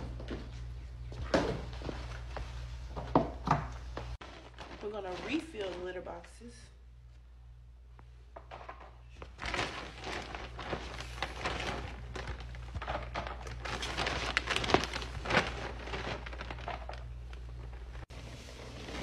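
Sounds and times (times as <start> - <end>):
plastic bag crinkling: 4.2 - 6.4, 9.1 - 18.1.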